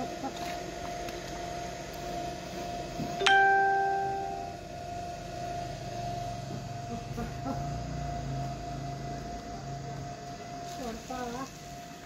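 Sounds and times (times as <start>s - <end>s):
steady hum: 0.0s - 12.0s
bell-like chime: 3.2s - 4.6s.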